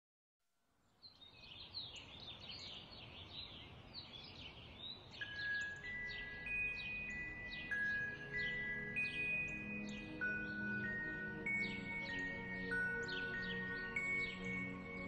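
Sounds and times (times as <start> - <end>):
small birds chirping: 0.8 - 15.0
soft chime-like music: 5.1 - 15.0.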